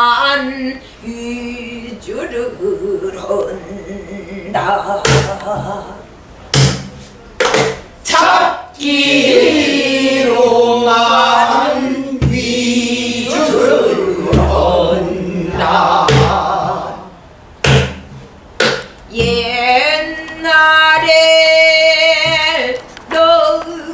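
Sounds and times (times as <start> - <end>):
group singing together: 3.4 - 6.1, 7.6 - 17.8
barrel drum strokes: 12.2 - 12.8, 13.4 - 17.0.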